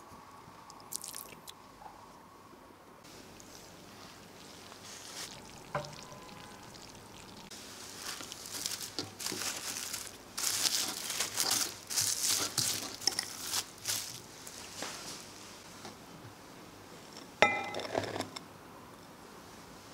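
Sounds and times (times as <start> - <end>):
plastic cling film crinkling: 7.6 - 15.3.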